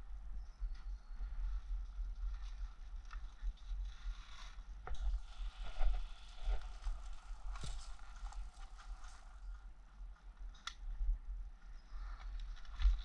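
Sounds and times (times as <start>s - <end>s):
rustling and handling noise: 2.2s - 9.6s.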